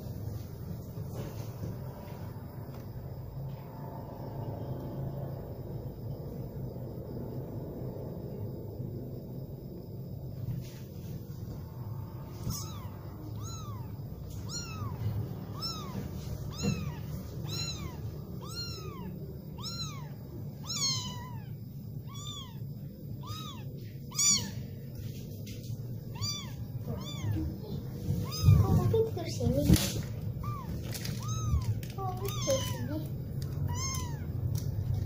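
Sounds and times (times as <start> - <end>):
kitten mewing: 12.3 - 24.7, 26.1 - 29.0, 29.6 - 34.7.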